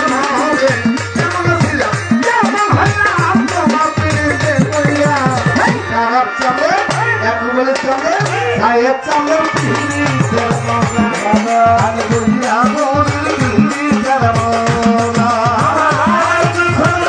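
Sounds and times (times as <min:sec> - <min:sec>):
hand drum with sliding bass notes: 0:00.0 - 0:05.9
harmonium: 0:00.0 - 0:17.0.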